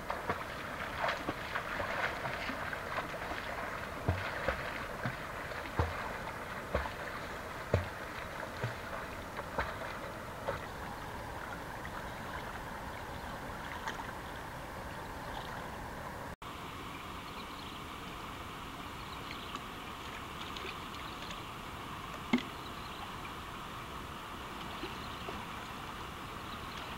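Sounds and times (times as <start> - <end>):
water splashing from kicking: 0.0 - 14.2
water lapping: 0.0 - 16.4.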